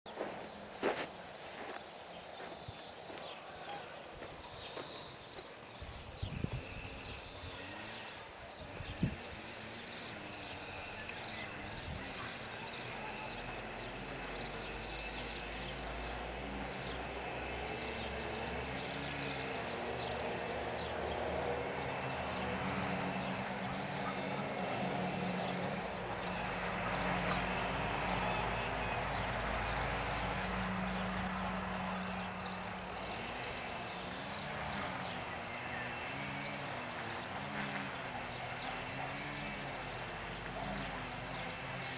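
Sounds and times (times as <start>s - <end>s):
footsteps on soft soil: 0.1s - 5.6s
low wavering hum: 0.1s - 41.9s.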